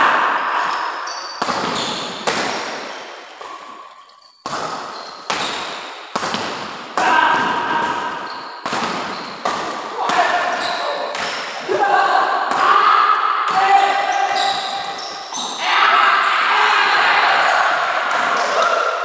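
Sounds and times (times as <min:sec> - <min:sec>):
rackets striking shuttlecock: 0:01.4 - 0:11.6.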